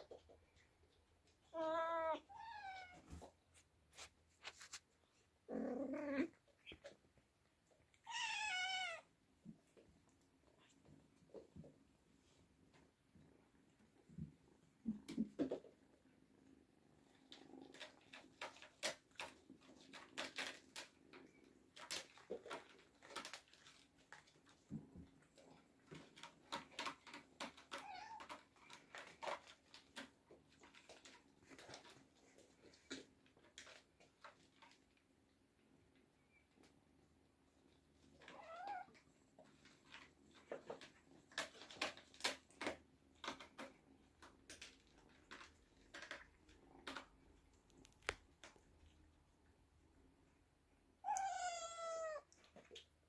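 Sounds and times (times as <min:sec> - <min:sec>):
cats meowing: 0:01.4 - 0:03.3, 0:05.5 - 0:06.9, 0:08.0 - 0:09.1, 0:38.2 - 0:39.0, 0:51.0 - 0:52.4
soft clicks and rustles: 0:02.2 - 0:05.5, 0:09.3 - 0:51.3, 0:52.2 - 0:53.0.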